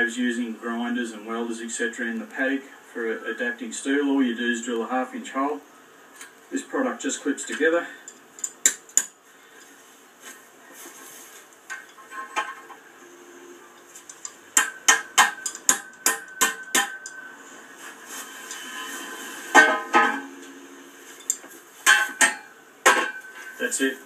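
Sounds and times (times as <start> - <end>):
sharp metallic knocks: 14.5 - 17.4, 19.5 - 20.5, 21.2 - 23.4.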